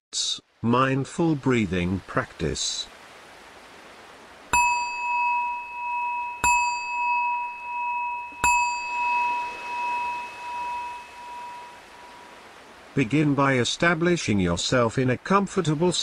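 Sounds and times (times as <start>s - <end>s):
faint ocean waves: 0.1s - 16.0s
meditation bell ringing: 4.5s - 12.4s.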